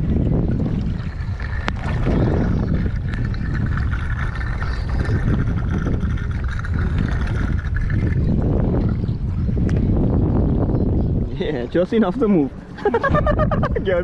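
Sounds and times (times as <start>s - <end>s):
fuel gurgling from a can spout: 0.0s - 10.6s
wind buffeting microphone: 0.0s - 14.0s.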